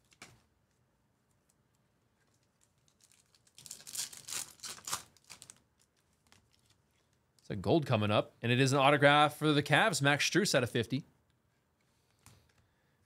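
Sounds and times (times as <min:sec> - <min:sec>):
foil wrapper crinkling and tearing: 0:02.2 - 0:07.2.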